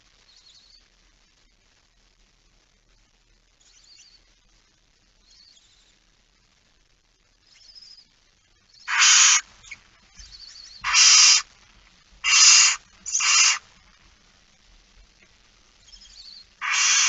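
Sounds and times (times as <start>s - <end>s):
faint high chittering: 8.7s - 11.5s, 12.2s - 14.0s, 15.8s - 17.0s
owl chicks hissing: 8.8s - 11.5s, 12.2s - 13.7s, 15.8s - 17.0s.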